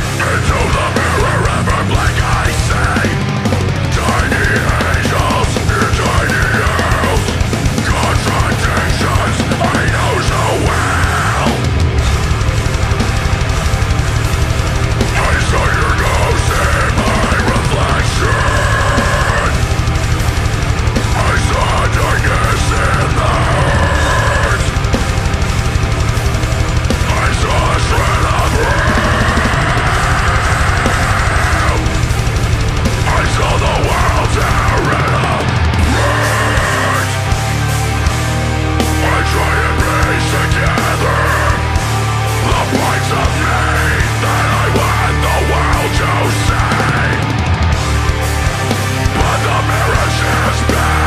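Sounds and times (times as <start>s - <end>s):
person singing: 0.0s - 12.4s, 15.1s - 19.8s, 21.0s - 24.9s, 26.8s - 32.2s, 33.0s - 37.6s, 38.6s - 47.7s, 49.0s - 51.0s
distorted guitars: 0.0s - 51.0s
fast drumming: 0.0s - 51.0s
harsh screamed vocal: 0.0s - 51.0s.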